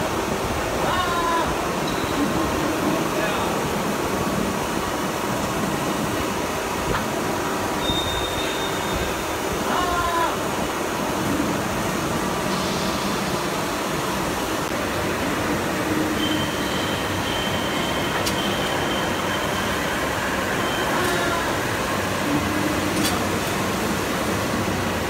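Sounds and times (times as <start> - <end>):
machine noise: 11.0 - 25.0.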